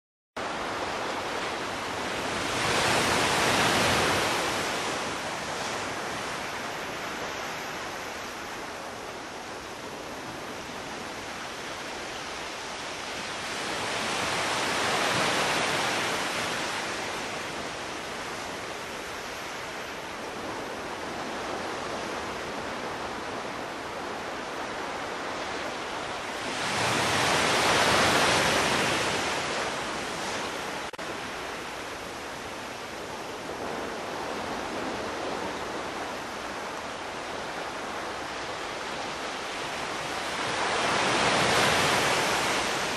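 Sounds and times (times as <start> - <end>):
ocean waves breaking on beach: 0.4 - 42.9.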